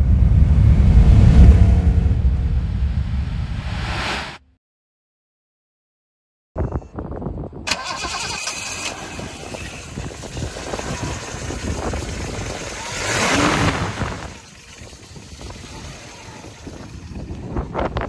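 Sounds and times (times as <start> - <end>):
car engine starting and idling: 7.7 - 17.6.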